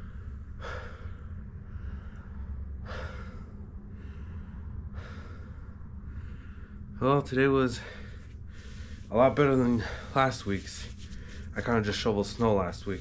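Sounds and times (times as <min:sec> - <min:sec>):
man breathing hard: 0:00.0 - 0:07.0, 0:07.7 - 0:10.4
steady low hum: 0:00.0 - 0:13.0.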